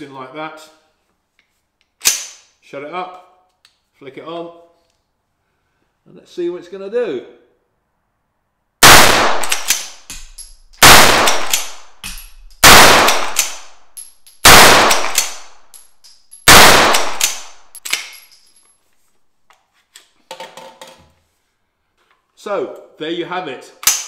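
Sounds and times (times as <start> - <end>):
rifle action clicks: 1.8 - 2.4, 9.4 - 13.7, 14.4 - 15.8, 16.5 - 18.3
rifle shots ringing: 8.8 - 13.8, 14.4 - 15.7, 16.4 - 18.3.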